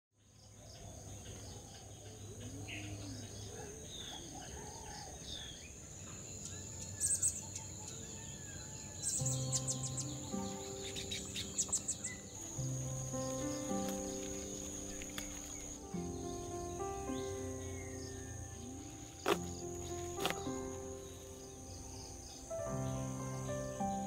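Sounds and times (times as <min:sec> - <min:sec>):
birdsong: 0:00.2 - 0:24.0
high cricket-like chirring: 0:01.6 - 0:24.0
soft held music notes: 0:09.0 - 0:24.0.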